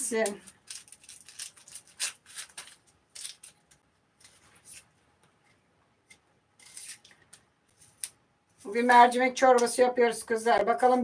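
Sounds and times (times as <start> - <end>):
dry onion skin crackling: 0.0 - 4.9.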